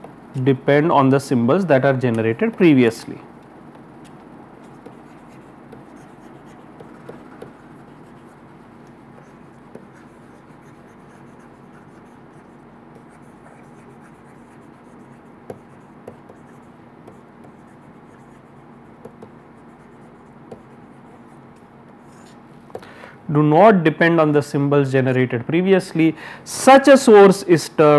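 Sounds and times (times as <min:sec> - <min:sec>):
steady low hum: 0:00.0 - 0:26.5
stylus scratching on tablet screen: 0:04.6 - 0:22.4.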